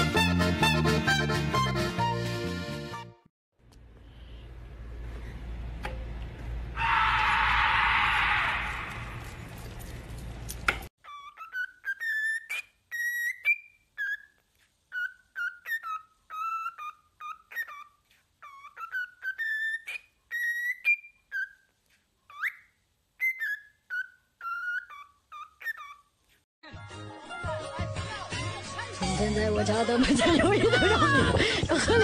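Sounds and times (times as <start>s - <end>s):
cockatiel whistling: 11.0s - 21.7s, 22.3s - 26.0s.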